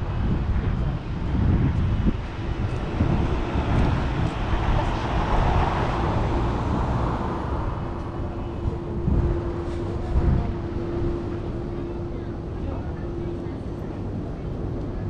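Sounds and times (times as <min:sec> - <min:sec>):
steady engine hum: 0:00.0 - 0:15.0
street traffic rumble: 0:00.0 - 0:15.0
vehicle passing by: 0:02.0 - 0:11.2.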